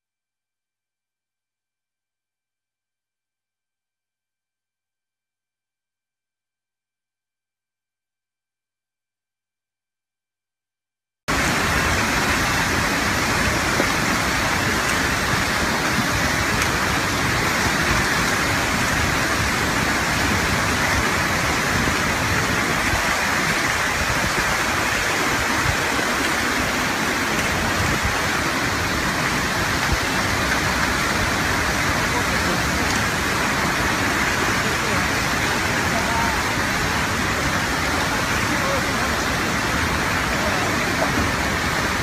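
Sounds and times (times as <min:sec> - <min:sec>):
torrential water rushing: 0:11.3 - 0:42.0.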